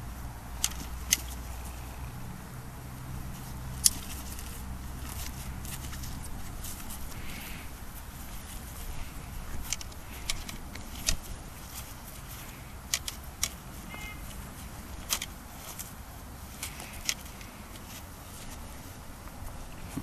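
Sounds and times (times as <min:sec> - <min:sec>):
low outdoor rumble: 0:00.0 - 0:20.0
practice swords clacking: 0:00.6 - 0:02.0.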